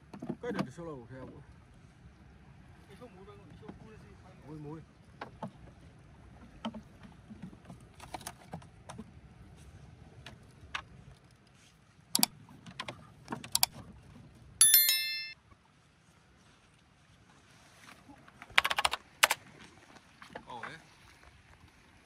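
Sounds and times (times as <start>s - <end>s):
loud metallic ring: 14.6s - 15.4s.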